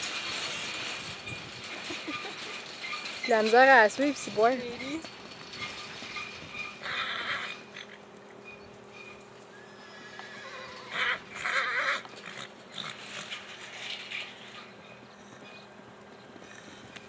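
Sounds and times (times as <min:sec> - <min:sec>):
horse whinny: 0:06.8 - 0:08.0, 0:09.5 - 0:13.4.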